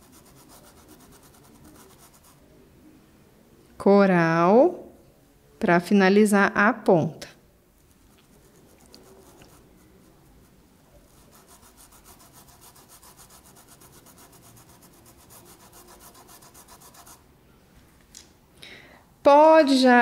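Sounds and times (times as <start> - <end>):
paintbrush scratching on cloth: 0.0 - 2.5, 7.9 - 17.2.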